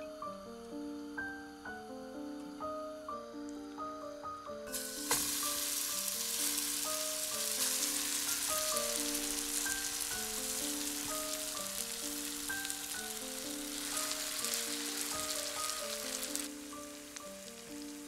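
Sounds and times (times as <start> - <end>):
batter sizzling in frying oil: 4.7 - 18.0.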